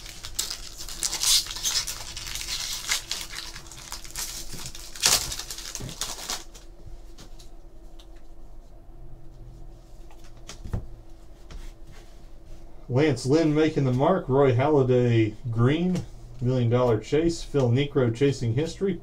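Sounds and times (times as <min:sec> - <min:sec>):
foil wrapper tearing and crinkling: 0:00.0 - 0:06.6.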